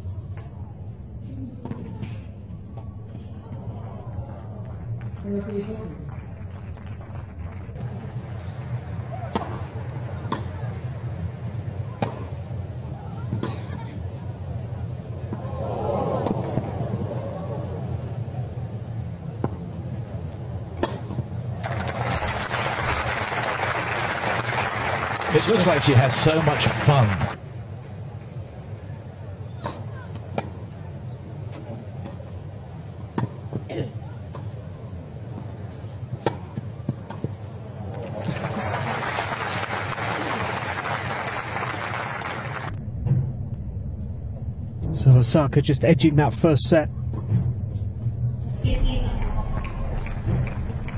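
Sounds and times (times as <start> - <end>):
crowd murmur: 0.0 - 42.8
crowd applause: 5.9 - 10.0, 21.6 - 27.4, 37.8 - 42.8, 49.1 - 50.9.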